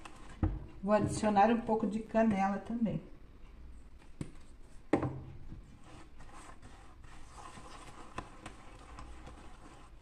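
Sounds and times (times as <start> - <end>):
spatula stirring dough in metal bowl: 5.6 - 10.0.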